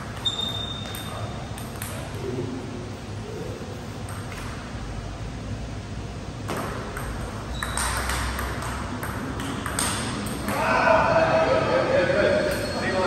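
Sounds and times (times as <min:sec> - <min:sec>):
table tennis ball clicking: 0:06.5 - 0:10.6.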